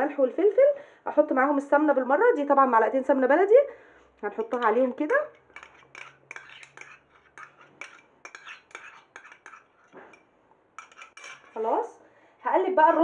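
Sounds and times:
spoon scraping and tapping cup: 4.3 - 11.6.

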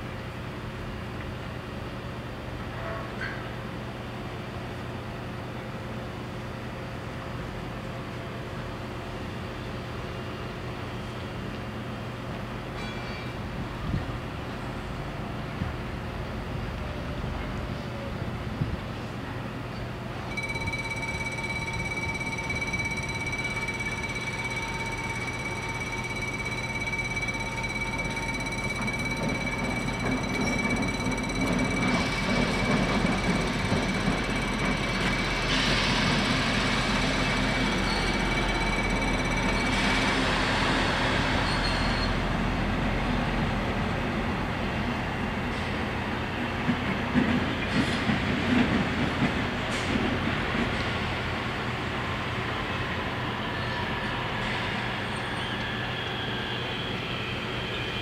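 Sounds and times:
rail noise: 0.0 - 58.0
locomotive engine rumble: 16.6 - 43.6
level crossing warning bells: 20.3 - 42.1.

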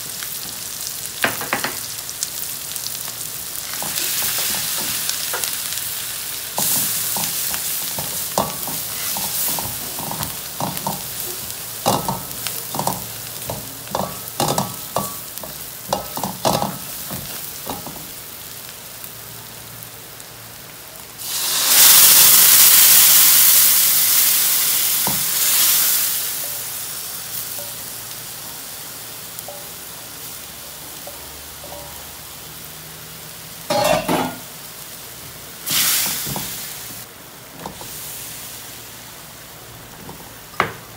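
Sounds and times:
loud sizzle: 0.0 - 40.9
paste frying in oil: 0.0 - 40.9
spatula tapping a wok: 6.6 - 11.2, 11.8 - 18.1.

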